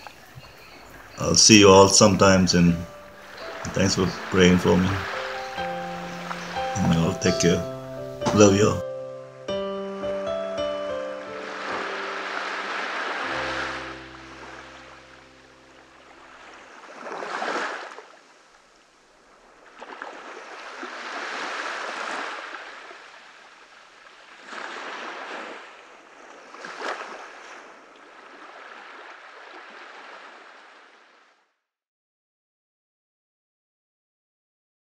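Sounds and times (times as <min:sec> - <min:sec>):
ocean waves washing onto shore: 0:00.0 - 0:08.8, 0:10.2 - 0:31.4
held music note: 0:01.5 - 0:16.0.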